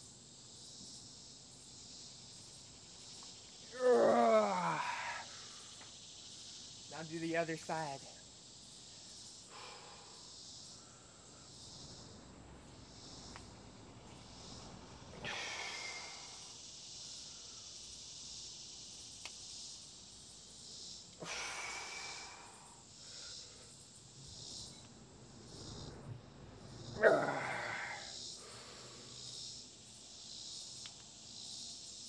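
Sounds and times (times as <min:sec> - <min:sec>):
man breathing hard: 0:09.4 - 0:11.6, 0:15.1 - 0:16.6, 0:21.2 - 0:23.9, 0:27.1 - 0:29.2
man exhaling forcefully: 0:15.2 - 0:16.6, 0:21.2 - 0:22.8, 0:27.0 - 0:29.0.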